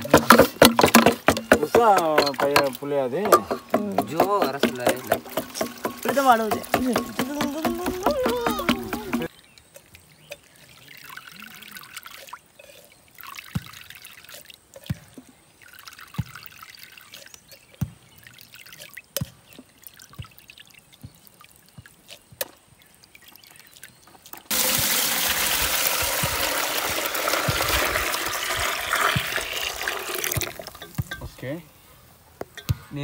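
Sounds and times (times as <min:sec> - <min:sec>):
juice trickling through strainer: 0:03.9 - 0:31.0
juice pouring into pot: 0:04.0 - 0:07.2, 0:10.5 - 0:14.9, 0:15.6 - 0:17.5, 0:24.5 - 0:30.9.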